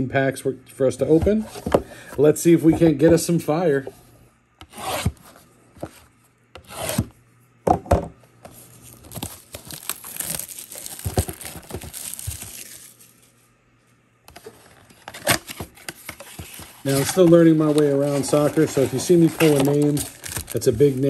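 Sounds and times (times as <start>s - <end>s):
plastic wrap crinkling: 8.5s - 13.4s, 16.0s - 21.0s
plastic wrap scraping: 8.5s - 13.4s, 14.4s - 21.0s.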